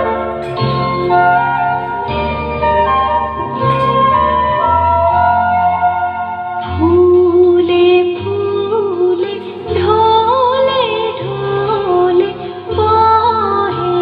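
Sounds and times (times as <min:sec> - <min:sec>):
sustained instrumental backing: 0:00.0 - 0:08.2
woman singing slow melody: 0:06.6 - 0:14.0.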